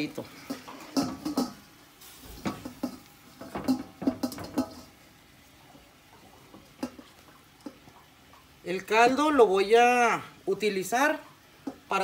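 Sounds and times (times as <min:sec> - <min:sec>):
metal spoon clinking on pot: 0:02.6 - 0:04.9.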